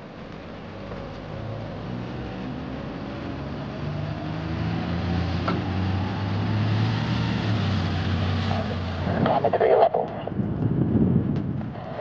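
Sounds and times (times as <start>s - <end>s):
bus diesel engine driving past: 0.0s - 9.2s.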